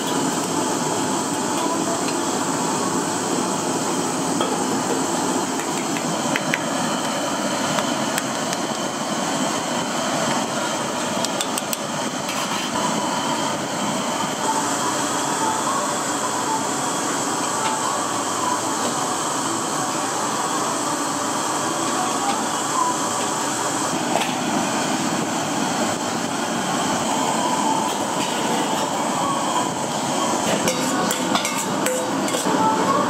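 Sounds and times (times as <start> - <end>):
kitchen noise: 30.3 - 33.0.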